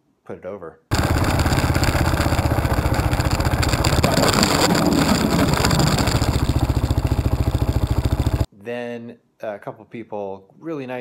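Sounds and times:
motorcycle engine running: 0:00.9 - 0:08.5
motorcycle scraping on ice: 0:00.9 - 0:08.5.

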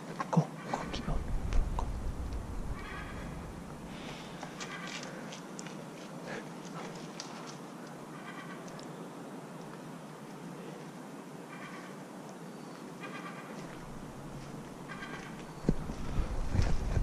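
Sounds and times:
out-of-breath breathing: 0:03.1 - 0:07.0, 0:15.7 - 0:17.0
footsteps on paving slabs: 0:04.0 - 0:07.6.

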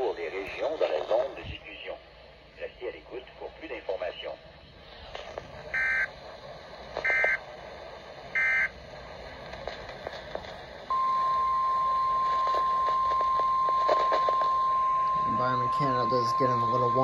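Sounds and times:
steady warning alarm tone: 0:05.8 - 0:06.1, 0:07.0 - 0:07.4, 0:08.4 - 0:08.7, 0:10.9 - 0:17.0
digital data bursts: 0:10.9 - 0:17.0.

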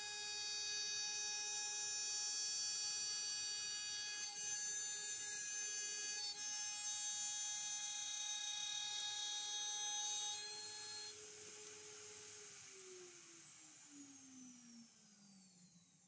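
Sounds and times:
cnc router spindle whine: 0:00.0 - 0:16.0
motor winding down: 0:12.3 - 0:16.0.

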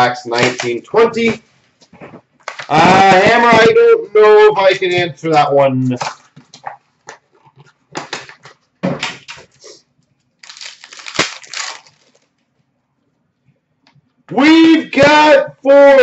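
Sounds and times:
wrapper rustling and crinkling: 0:01.9 - 0:03.1, 0:10.3 - 0:12.5
card packs being torn open: 0:02.4 - 0:02.8, 0:10.4 - 0:12.4.

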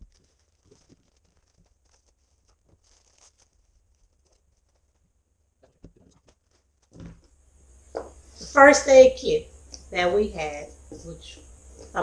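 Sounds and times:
plastic packets rustling: 0:00.0 - 0:05.0
plastic crinkle: 0:00.0 - 0:07.3
small items knocking on table: 0:05.6 - 0:07.3.

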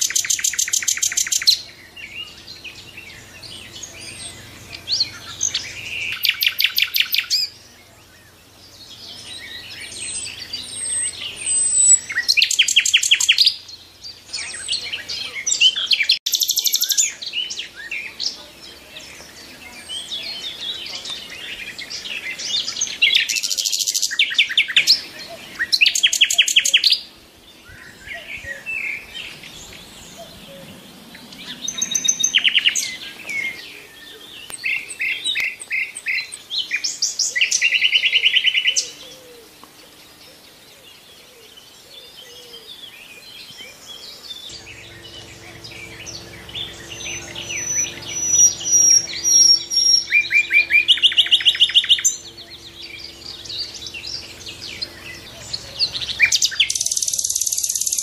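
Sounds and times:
bird rapid trills: 0:00.0 - 0:07.7, 0:28.6 - 0:33.6, 0:44.2 - 0:58.0
birds chirping and whistling: 0:00.0 - 0:58.0.

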